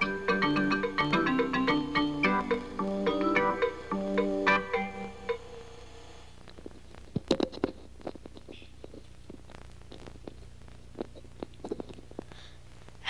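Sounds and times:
background music note: 0:00.0 - 0:05.8
low electrical hum: 0:00.0 - 0:13.0.

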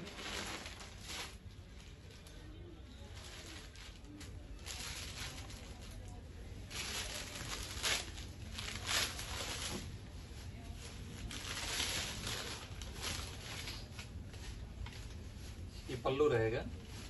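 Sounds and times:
fabric rustling: 0:00.0 - 0:17.0.

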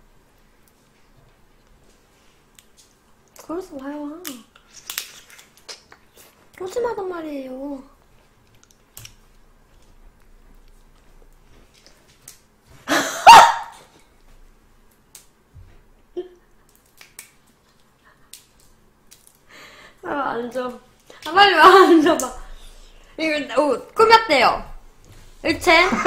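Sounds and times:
dog barking: 0:13.2 - 0:13.8.

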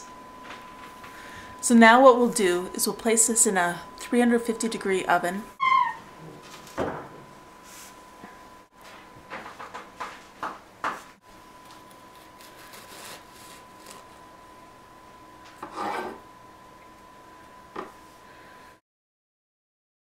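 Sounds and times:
faint high tone: 0:05.5 - 0:06.0
bread knife sawing through loaf: 0:12.4 - 0:14.1.

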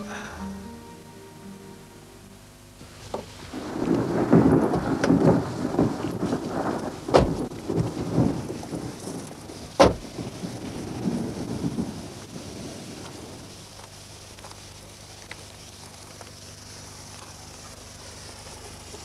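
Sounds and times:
thunder rumbling: 0:03.4 - 0:13.8
sharp thunder cracks: 0:03.5 - 0:13.5.

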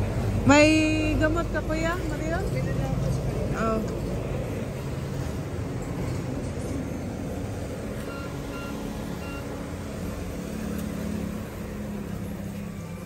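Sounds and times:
short faint beeps: 0:08.0 - 0:09.5.

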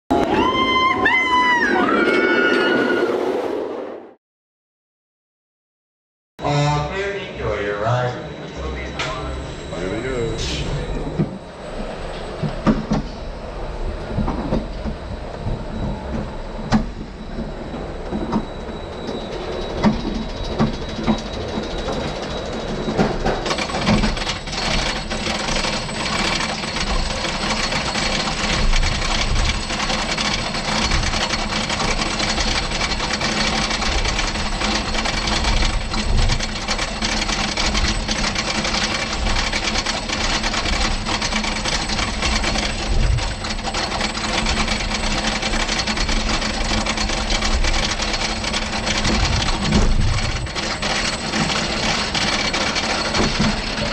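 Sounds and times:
roller coaster clunks: 0:12.1 - 0:13.3, 0:14.0 - 0:53.9
lift chain clatter: 0:18.5 - 0:53.9.

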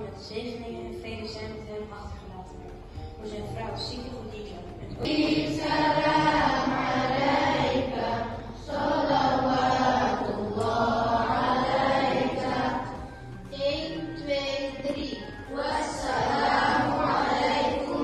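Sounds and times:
group of voices chanting: 0:05.0 - 0:13.0, 0:15.5 - 0:18.0.

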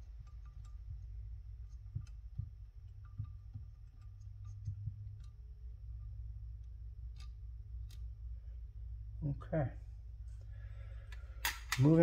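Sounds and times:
metal carburetor knocks and clicks: 0:00.0 - 0:08.2
steady low hum: 0:00.0 - 0:12.0.

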